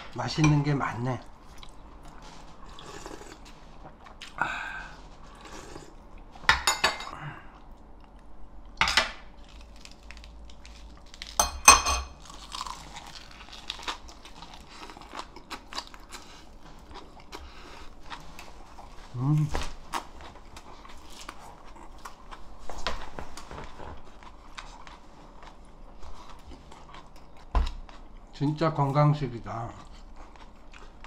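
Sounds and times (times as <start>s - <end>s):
chewing and crunching leaves: 9.4s - 11.4s, 12.2s - 31.0s
metal utensils clinking on dishes: 11.4s - 12.2s.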